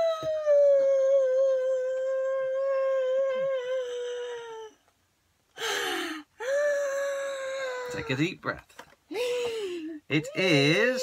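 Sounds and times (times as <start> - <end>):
breathy cry: 5.6 - 8.1.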